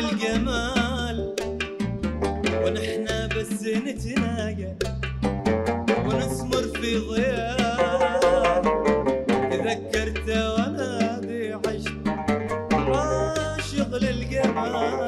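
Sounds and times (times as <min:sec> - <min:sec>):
man singing: 0:00.0 - 0:01.5, 0:02.6 - 0:04.9, 0:06.0 - 0:12.1, 0:12.8 - 0:15.0
low bass notes: 0:00.0 - 0:15.0
plucked oud: 0:05.2 - 0:06.7, 0:07.6 - 0:11.1, 0:11.7 - 0:15.0.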